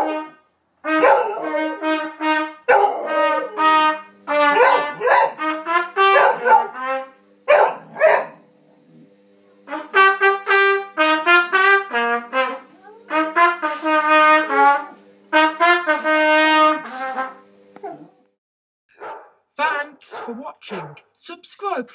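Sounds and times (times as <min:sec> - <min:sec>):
trumpet playing short notes: 0:00.0 - 0:07.3, 0:09.6 - 0:17.5
dog howling: 0:01.0 - 0:03.8.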